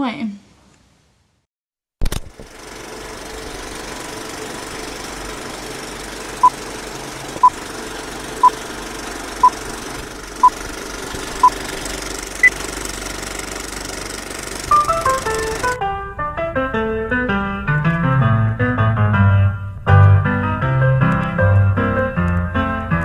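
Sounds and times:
film projector clatter: 2.0s - 15.8s.

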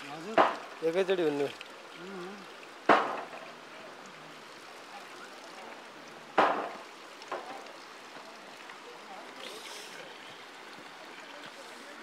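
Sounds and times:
water splashes: 0.0s - 12.0s
water trickling from a pipe: 0.0s - 12.0s.

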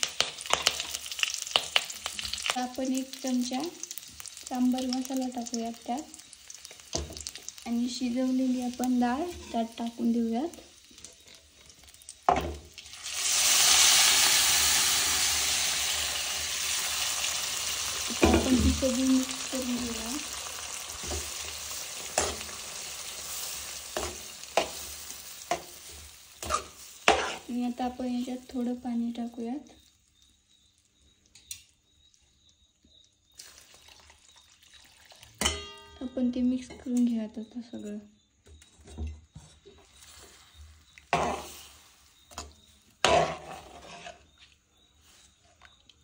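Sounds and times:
food sizzling in oil: 0.0s - 37.3s, 39.3s - 45.5s
spoon stirring in a pan: 3.9s - 12.5s, 19.7s - 27.8s, 38.8s - 46.0s
spoon scraping a pan: 8.4s - 12.5s, 21.0s - 27.8s, 38.6s - 45.7s.

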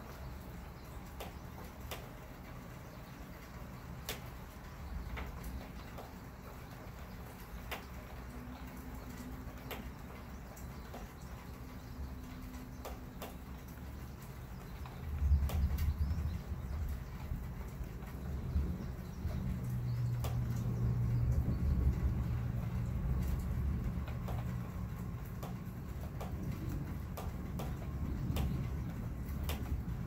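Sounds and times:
thunder rumbling: 15.0s - 30.0s.

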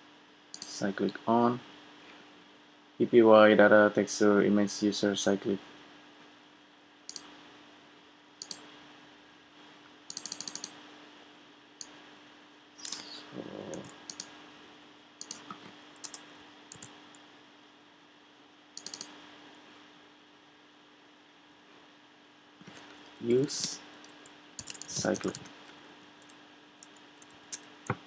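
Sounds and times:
faint steady hum: 0.0s - 28.0s
keyboard key clicks: 15.2s - 16.9s, 23.6s - 25.5s.

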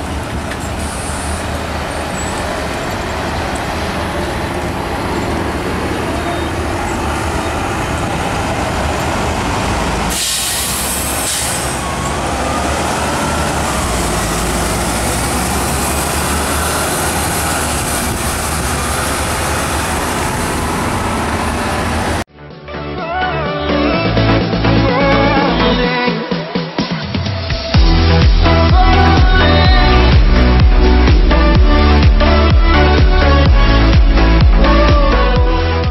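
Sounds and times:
bus whine: 0.0s - 22.3s
diesel bus engines: 0.0s - 22.3s, 27.3s - 35.9s
air brake hiss: 0.7s - 1.6s, 10.1s - 12.0s.

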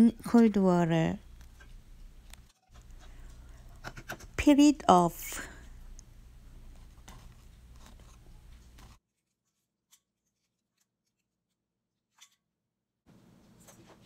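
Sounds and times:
low room hum: 0.0s - 9.0s, 13.1s - 14.0s.

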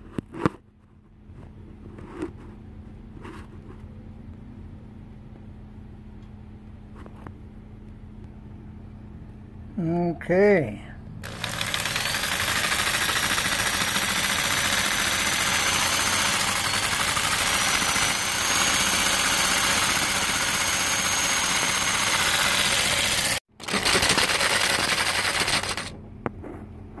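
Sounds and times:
power saw cutting metal rod: 11.2s - 25.9s.

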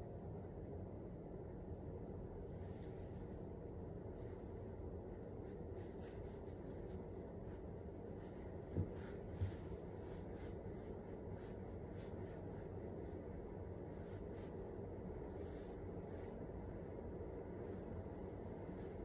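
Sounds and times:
low room hum: 0.0s - 19.0s
soft thumps: 8.6s - 9.7s.

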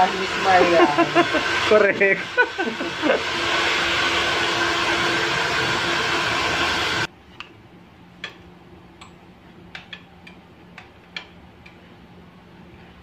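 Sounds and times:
hair dryer blowing: 0.0s - 7.1s
low hum: 0.0s - 7.1s.

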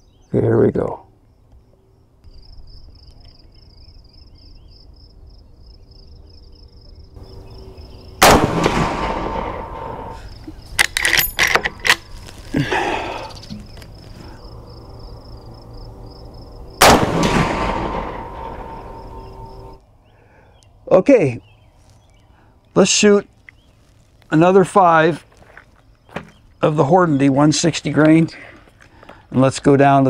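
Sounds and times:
rifle shot with echo: 8.2s - 10.2s, 16.8s - 19.8s
rifle lever clicks: 10.7s - 12.1s.

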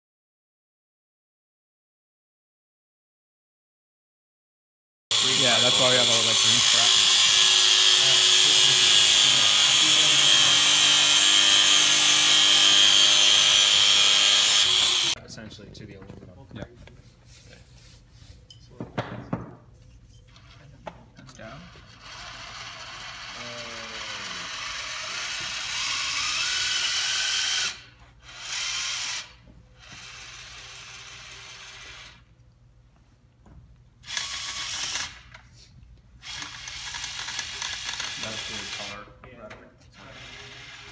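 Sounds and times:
angle grinder grinding metal: 5.1s - 15.2s, 21.4s - 32.3s, 36.2s - 39.1s, 40.0s - 40.9s
electric motors whining: 5.1s - 15.2s, 21.5s - 32.3s, 34.0s - 35.4s, 36.2s - 39.1s, 39.9s - 40.9s.

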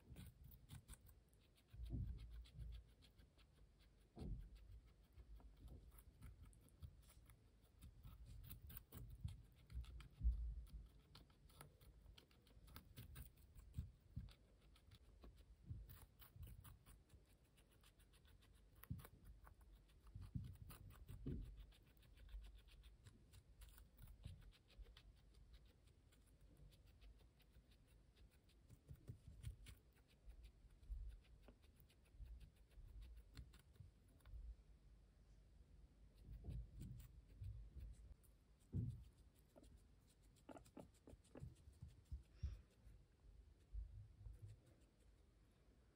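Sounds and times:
guinea pig chewing crunchily: 0.0s - 34.7s, 36.1s - 45.5s
soft low thumps: 8.0s - 11.0s, 36.2s - 39.6s.

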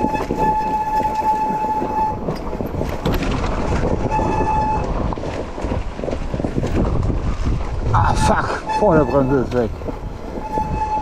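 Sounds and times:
brake squealing: 0.0s - 5.1s, 8.0s - 11.0s
motorcycle riding over rough ground: 0.0s - 7.8s.

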